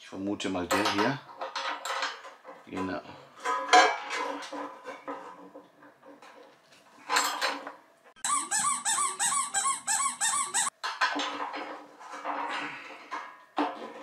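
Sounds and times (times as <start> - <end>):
plastic toy car squeaking: 8.2 - 10.8.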